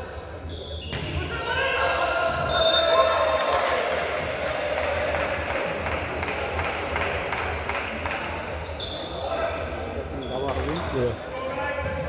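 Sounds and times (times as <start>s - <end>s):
players shouting: 1.1s - 6.3s.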